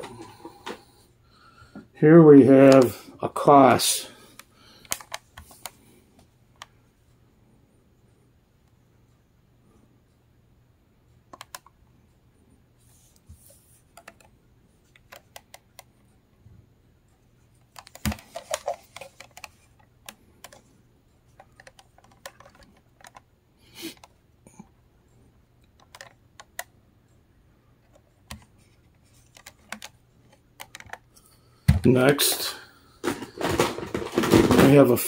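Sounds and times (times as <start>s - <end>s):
plastic radio being handled: 4.4s - 6.7s, 14.9s - 15.9s, 17.6s - 20.7s, 21.3s - 23.3s, 25.7s - 26.7s, 27.8s - 35.0s
plastic clatter: 17.8s - 19.6s, 31.7s - 35.0s.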